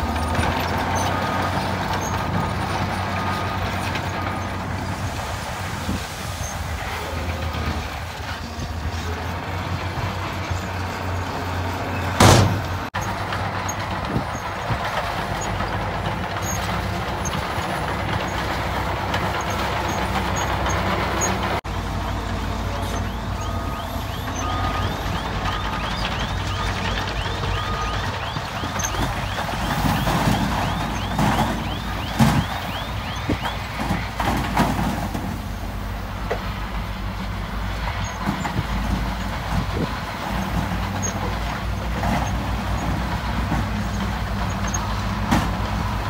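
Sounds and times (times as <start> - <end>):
diesel truck engines running: 0.0 - 46.0
reversing alarm beeping: 22.5 - 33.7.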